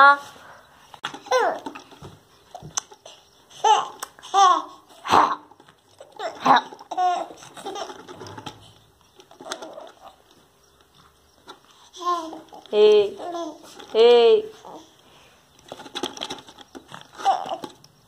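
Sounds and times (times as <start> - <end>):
toddler laughing and squealing: 1.2 - 1.7, 3.6 - 8.5.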